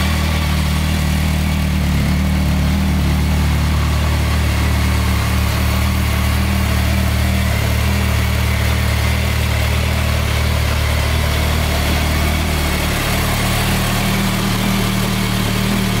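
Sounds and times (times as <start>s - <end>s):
motorcycle engine idling: 0.0s - 16.0s.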